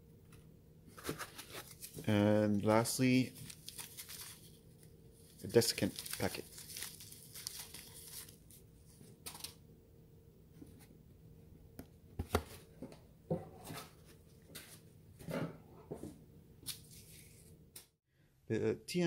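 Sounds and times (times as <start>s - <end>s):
paper packet rustling: 1.0s - 9.6s.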